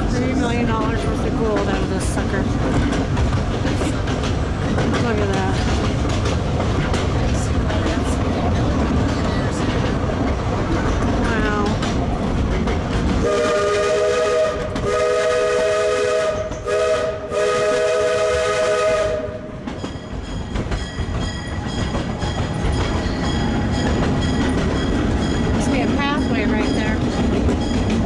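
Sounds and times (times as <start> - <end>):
wheels clicking over rail joints: 0.0 - 13.9, 14.5 - 15.0, 19.6 - 28.0
rail car rattling: 0.0 - 28.0
steam whistle chord: 13.2 - 19.4.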